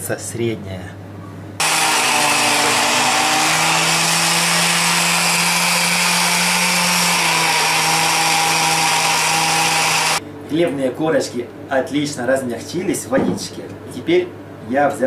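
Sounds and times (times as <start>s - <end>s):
meat grinder motor hum: 1.6s - 10.2s.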